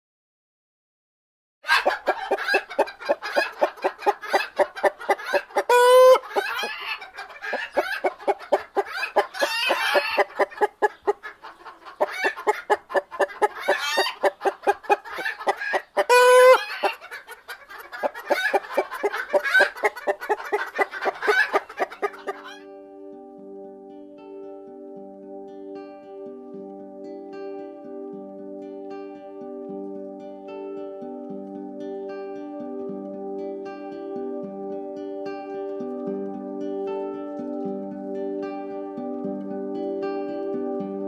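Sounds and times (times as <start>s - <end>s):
chicken drawn-out calls: 1.6s - 22.6s
chickens clucking: 1.7s - 22.6s.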